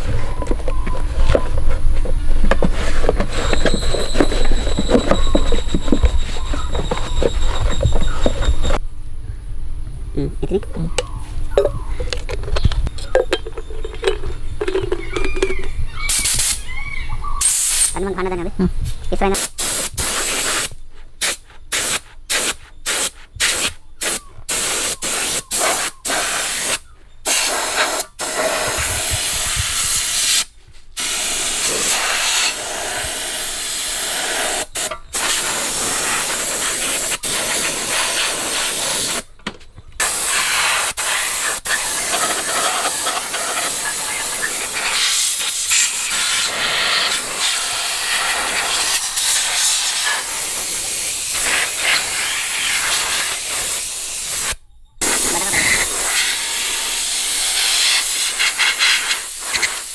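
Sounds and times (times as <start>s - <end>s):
water jet hissing on scooter: 21.8s - 39.2s, 40.0s - 59.9s.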